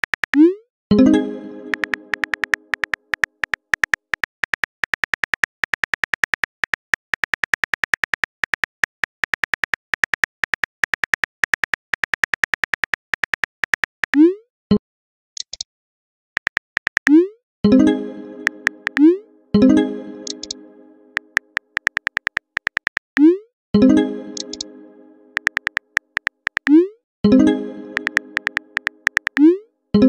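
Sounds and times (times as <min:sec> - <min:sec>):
phone keyboard typing clicks: 0:00.0 - 0:00.4, 0:01.6 - 0:14.2, 0:16.4 - 0:17.2, 0:18.4 - 0:19.1, 0:20.2 - 0:20.6, 0:21.2 - 0:23.3, 0:24.4 - 0:24.7, 0:25.3 - 0:26.8, 0:27.9 - 0:29.5
message chime: 0:00.9 - 0:02.6, 0:17.7 - 0:21.4, 0:23.8 - 0:25.4, 0:27.3 - 0:29.1.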